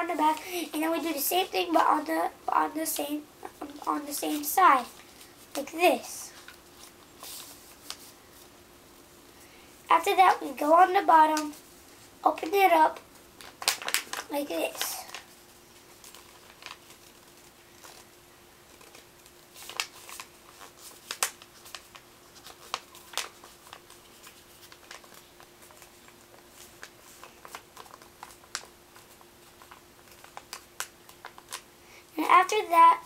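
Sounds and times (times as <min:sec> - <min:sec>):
faint steady hum: 0:00.0 - 0:33.0
paper crinkling: 0:03.5 - 0:08.5, 0:11.3 - 0:31.7.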